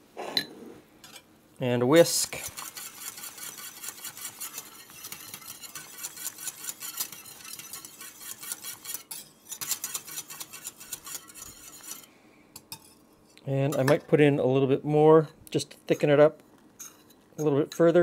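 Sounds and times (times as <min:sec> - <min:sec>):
whisk clicking against saucepan: 0:02.0 - 0:12.0.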